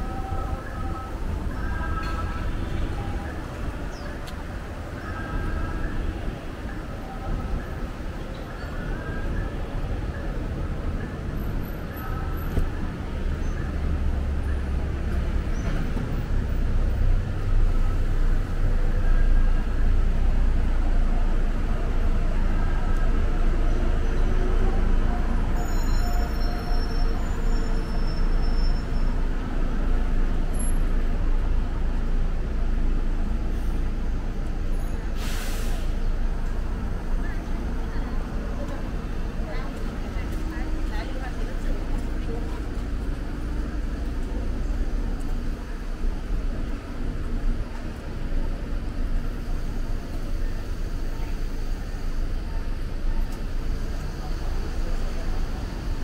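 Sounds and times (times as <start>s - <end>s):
vehicles and buses passing: 0.0s - 56.0s
short hiss: 35.2s - 36.1s.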